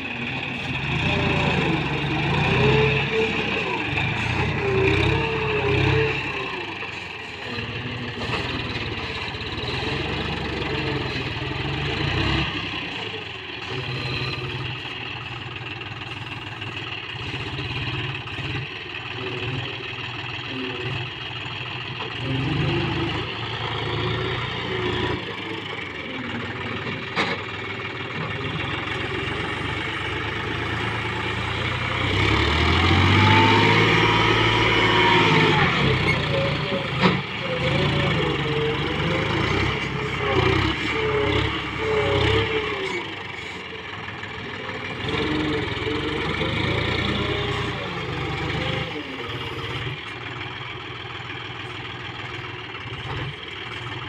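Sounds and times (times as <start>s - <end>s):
tractor diesel engine revving: 0.0s - 54.0s.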